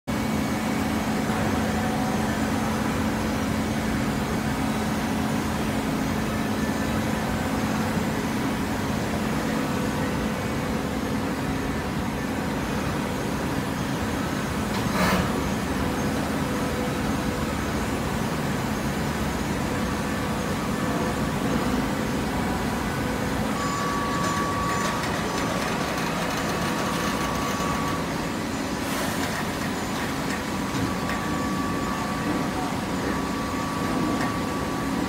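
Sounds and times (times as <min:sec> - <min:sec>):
baler mechanical hum: 0:00.1 - 0:35.0.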